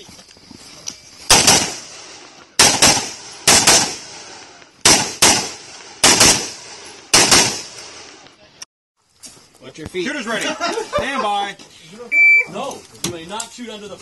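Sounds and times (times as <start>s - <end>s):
rifle shots with echo: 1.3s - 8.1s.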